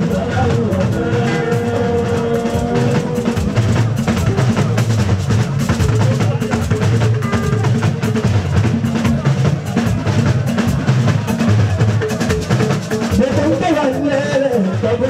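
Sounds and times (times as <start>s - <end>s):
bass guitar: 0.0s - 11.0s
talking drum and percussion: 0.0s - 15.0s.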